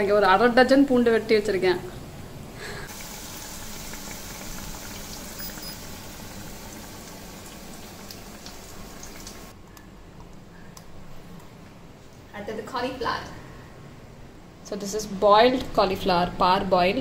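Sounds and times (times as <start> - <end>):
fritters deep-frying in oil: 2.9 - 9.5.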